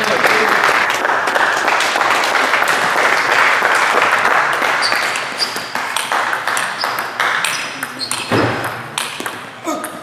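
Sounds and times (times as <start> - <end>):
applause: 0.0 - 7.4
table tennis ball hits: 4.9 - 10.0.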